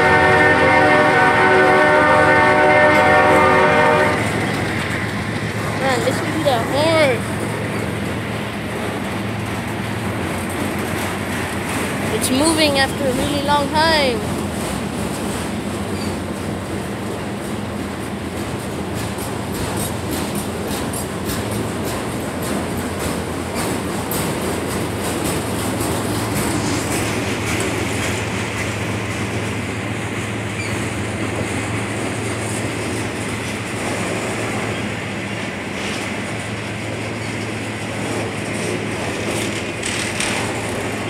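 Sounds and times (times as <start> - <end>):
train wheels rumbling on rails: 0.0 - 41.0
wheels clicking over rail joints: 0.4 - 41.0.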